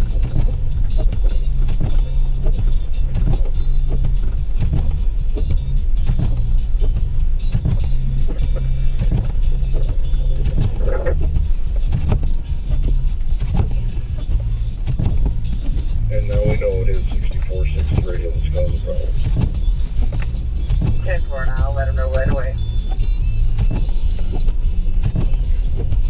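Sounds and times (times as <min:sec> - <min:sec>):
engine and road rumble: 0:00.0 - 0:26.0
short knocks and bumps: 0:00.1 - 0:18.1.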